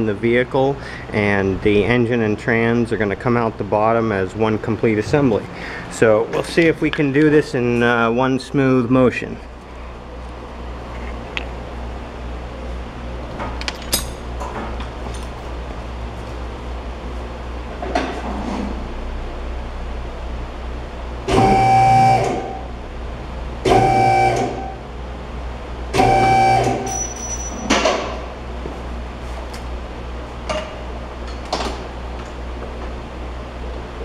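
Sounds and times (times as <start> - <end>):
electric pump motor: 21.3 - 22.7, 23.6 - 24.9, 25.9 - 27.0.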